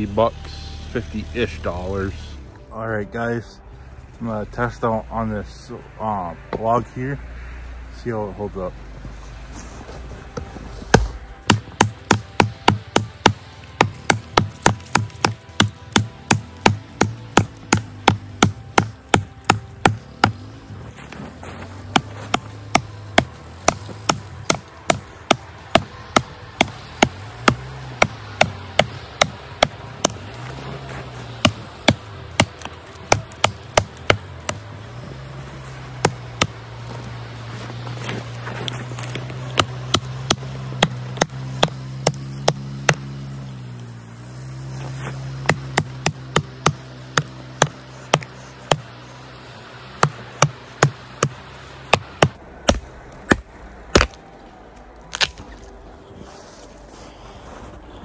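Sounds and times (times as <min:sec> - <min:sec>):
tomahawk chopping into wood: 0:10.9 - 0:20.5, 0:31.4 - 0:34.7, 0:36.0 - 0:36.6, 0:39.0 - 0:43.3, 0:45.3 - 0:48.8, 0:50.0 - 0:54.2, 0:55.1 - 0:55.5.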